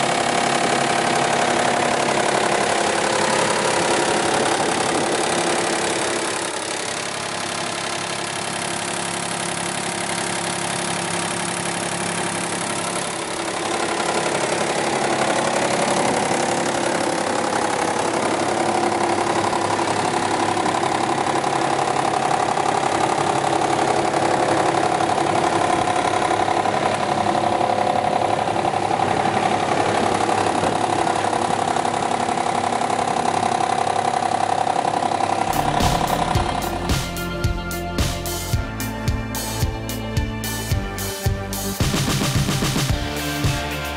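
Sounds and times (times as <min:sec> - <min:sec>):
wood chipper and generator humming: 0:00.0 - 0:43.9.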